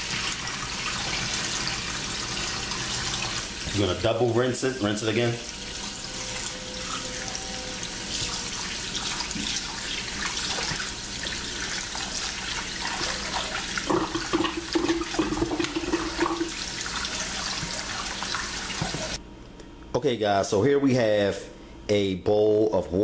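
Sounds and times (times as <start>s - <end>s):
tap water running into bowl: 5.5s - 19.2s
water splashing: 8.2s - 19.2s.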